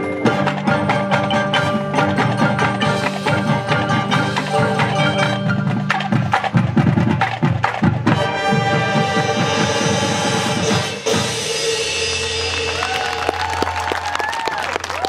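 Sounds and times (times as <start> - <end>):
marimbas and vibraphone mallet passages: 0.0 - 8.5
marching band playing: 0.0 - 13.9.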